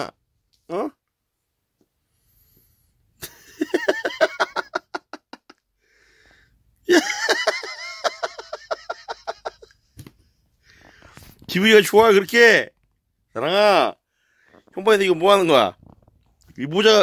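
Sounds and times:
person laughing: 3.2 - 5.6, 6.9 - 9.8.

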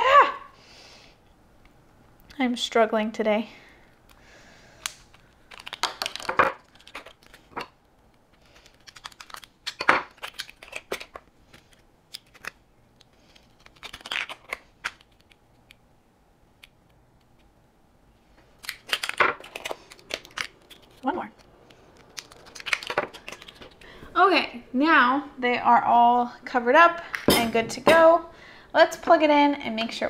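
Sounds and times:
plastic crinkling and clicking: 4.8 - 15.8, 18.6 - 23.9.

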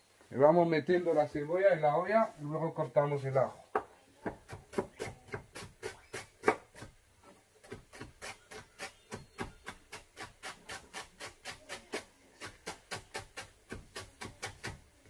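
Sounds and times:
knife chopping on cutting board: 4.2 - 6.9, 7.6 - 14.8.

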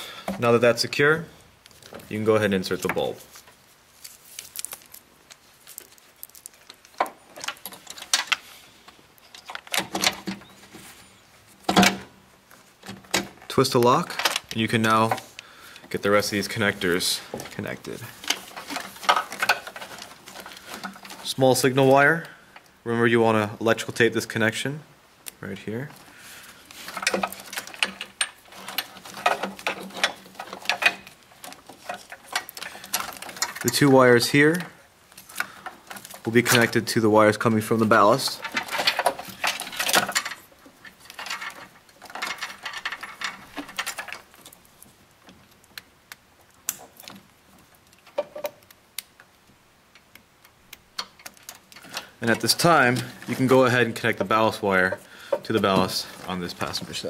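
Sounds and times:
faint steady hum: 0.0 - 57.0
plastic connectors clicking and rattling: 4.0 - 10.4.

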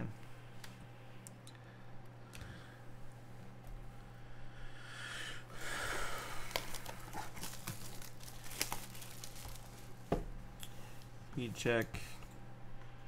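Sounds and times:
plastic wrapper tearing and crinkling: 6.4 - 10.0.

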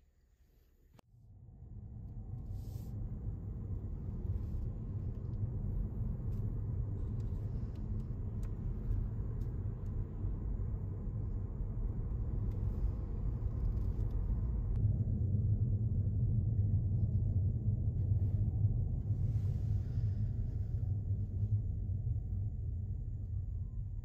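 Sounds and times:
car road and drivetrain rumble: 1.4 - 15.9.

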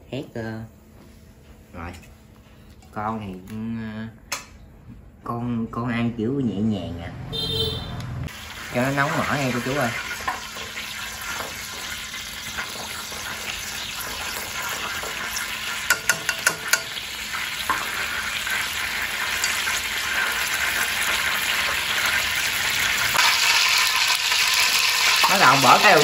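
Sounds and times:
oil sizzling in a pot: 8.3 - 26.0.

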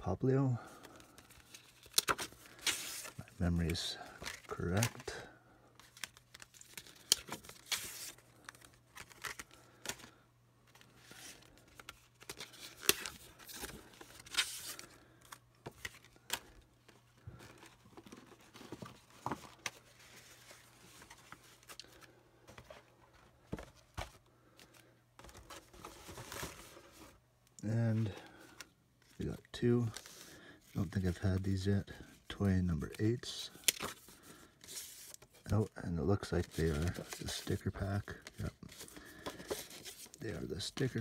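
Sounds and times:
card pack wrappers tearing: 1.2 - 5.2, 5.8 - 10.1.

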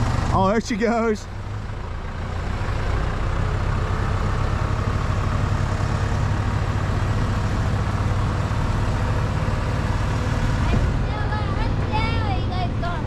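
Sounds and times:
truck engine under throttle: 0.0 - 13.0.

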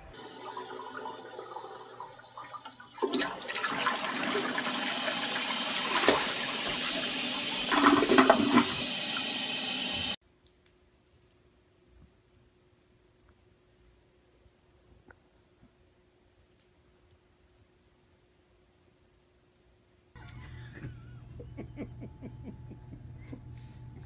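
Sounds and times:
toilet flushing: 0.0 - 10.2.

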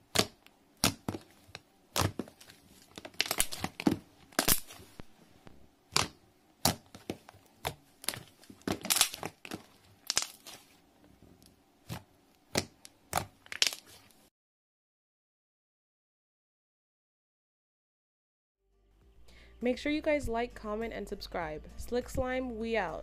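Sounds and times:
slime crackling and popping: 0.1 - 5.0, 5.9 - 10.8, 11.9 - 14.1.

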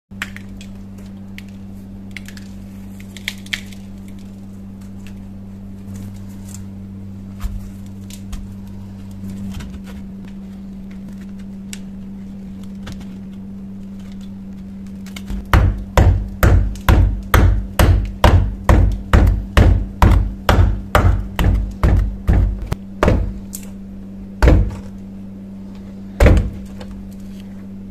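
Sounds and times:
steady low hum: 0.1 - 27.9
heavy thumps: 15.3 - 23.4, 24.4 - 25.0, 26.2 - 26.8.

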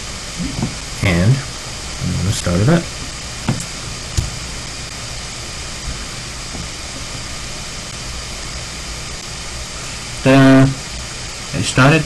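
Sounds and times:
background hiss: 0.0 - 12.0.

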